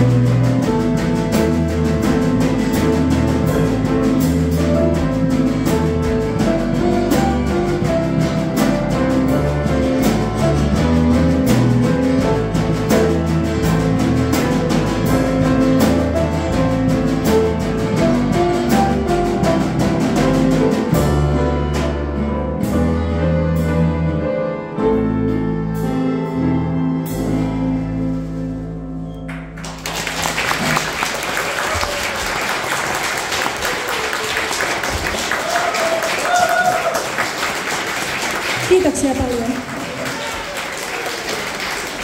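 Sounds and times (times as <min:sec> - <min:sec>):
live band playing: 0:00.0 - 0:42.0
audience applauding: 0:29.3 - 0:42.0.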